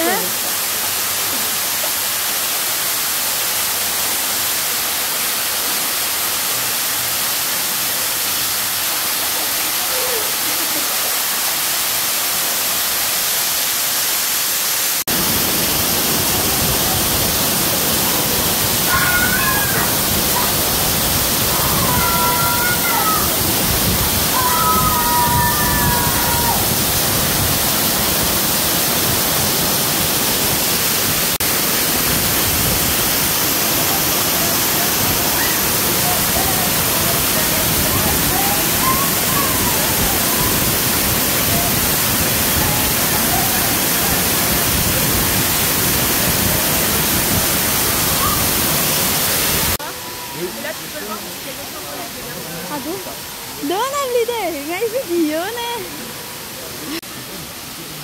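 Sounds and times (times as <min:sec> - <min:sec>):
waterfall rushing onto rock: 0:00.0 - 0:58.0.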